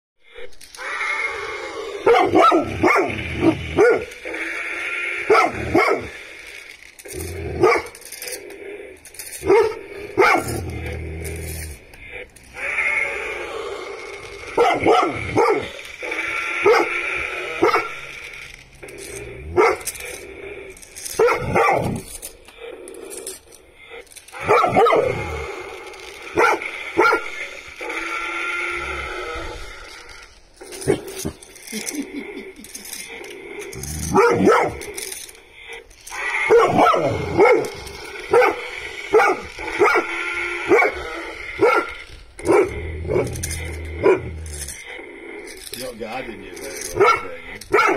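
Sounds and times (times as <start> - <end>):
puppy barking: 2.0 - 4.1, 5.3 - 6.2, 9.4 - 10.6, 14.6 - 15.8, 16.6 - 17.0, 17.6 - 18.0, 19.6 - 19.9, 21.2 - 22.0, 24.4 - 25.1, 26.4 - 27.3, 34.1 - 34.8, 36.5 - 41.0, 41.6 - 43.3, 47.0 - 47.9
puppy whining: 24.3 - 35.2, 36.0 - 45.0.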